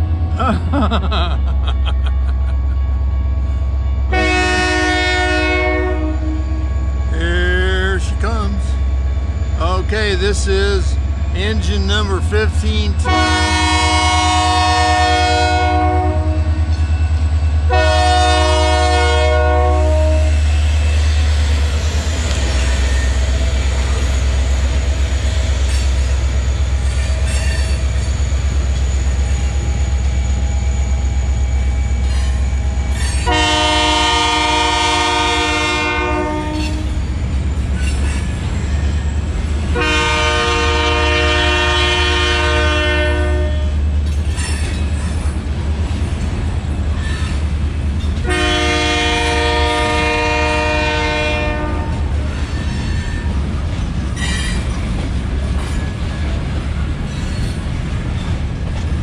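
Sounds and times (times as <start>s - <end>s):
locomotive air horn blasts: 4.1s - 6.7s, 13.0s - 16.6s, 17.7s - 20.4s, 33.2s - 37.0s, 39.7s - 43.8s, 48.2s - 52.2s.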